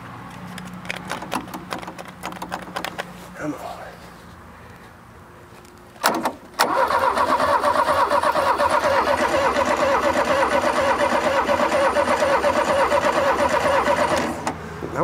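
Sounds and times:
starter motor cranking engine: 6.0 - 14.6.

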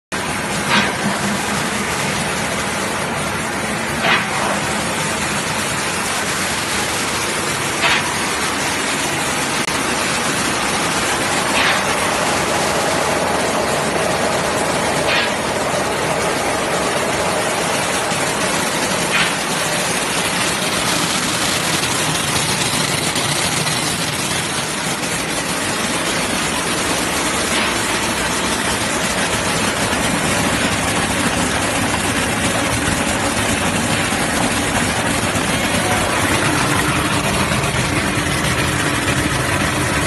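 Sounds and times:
sorting machine running: 0.1 - 40.0.

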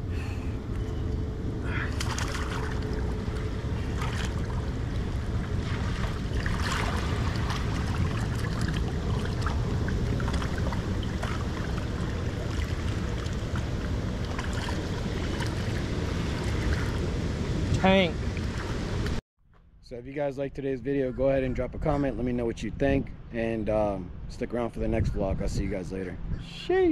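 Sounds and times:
wind buffeting microphone: 0.0 - 19.2, 24.1 - 26.9
small water splashes: 1.7 - 17.1
water rushing from spillway: 1.7 - 19.1.

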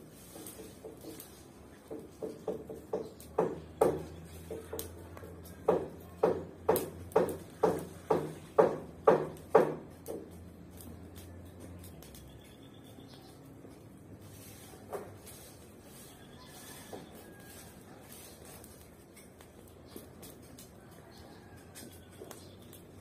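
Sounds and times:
yard tool scraping ground: 0.0 - 2.2, 13.1 - 23.0.

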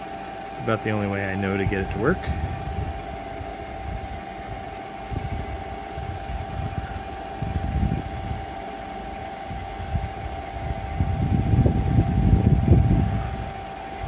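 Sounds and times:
wind buffeting microphone: 0.8 - 14.0.

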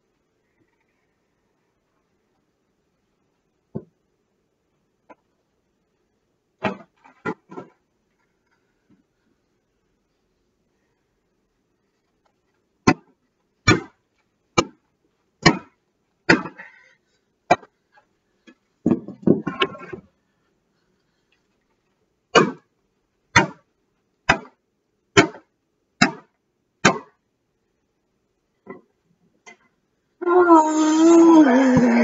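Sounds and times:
hockey stick whacking cardboard box: 12.8 - 13.1, 13.7 - 14.0, 14.6 - 14.8, 15.4 - 15.7, 16.3 - 16.6, 22.4 - 22.7, 24.3 - 24.6, 25.2 - 27.2.

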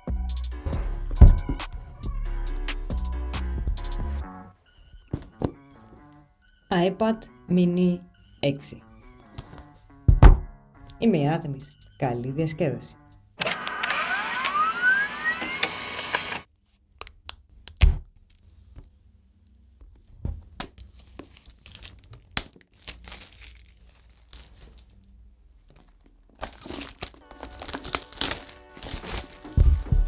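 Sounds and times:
plastic wrap tearing and crinkling: 20.8 - 30.0.

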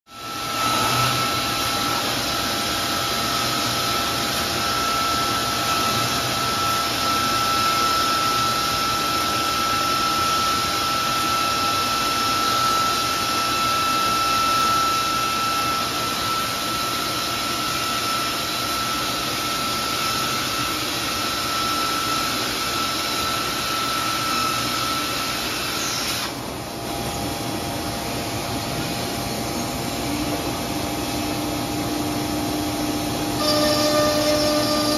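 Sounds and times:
high machine whine: 0.1 - 34.9
machinery noise: 33.0 - 34.9.

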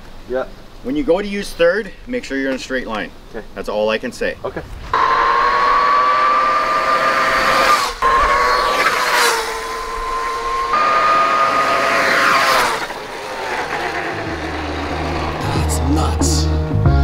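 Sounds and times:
electric dirt bike whine: 4.9 - 16.3.

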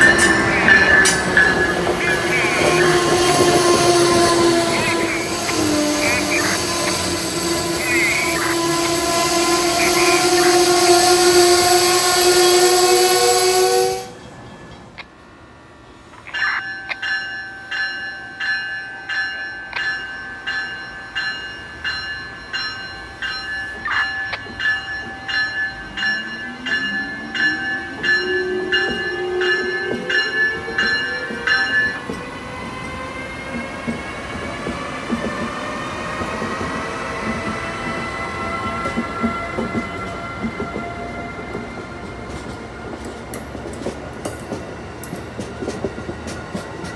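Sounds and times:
locomotive bell ringing: 0.0 - 11.7, 16.3 - 32.4
steady chord of tones: 0.0 - 14.2, 15.1 - 32.6
rush of departing train: 0.0 - 46.9
train rumble: 0.0 - 46.9.

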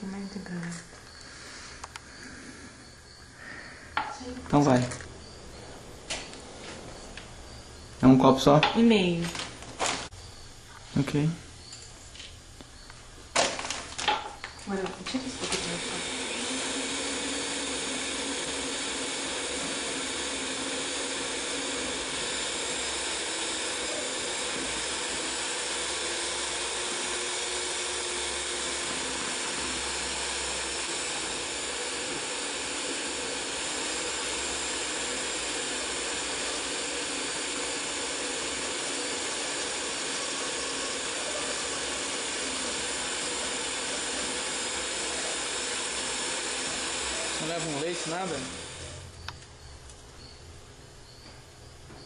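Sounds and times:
electric stand mixer whirring: 13.4 - 49.1.

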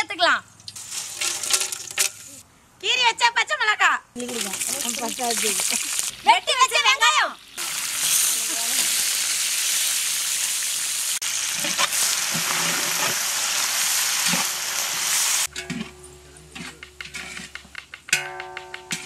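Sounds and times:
onions sizzling in hot fat: 0.8 - 2.4, 4.2 - 15.5
ladle knocking and scraping pot: 1.0 - 2.3, 16.6 - 19.0.

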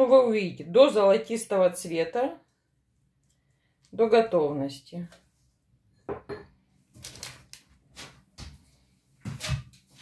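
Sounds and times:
baking dish knocking on table: 6.1 - 6.5.

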